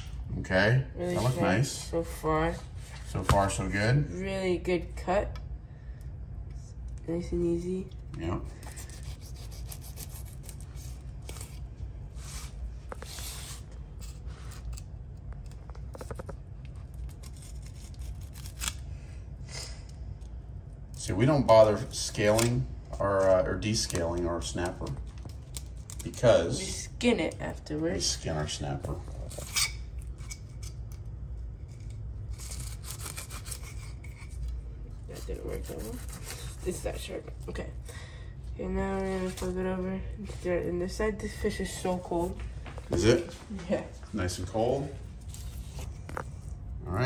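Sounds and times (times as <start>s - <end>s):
low steady hum: 0.0s - 47.0s
knife scraping fish: 8.6s - 11.6s, 17.0s - 18.8s, 31.6s - 37.0s.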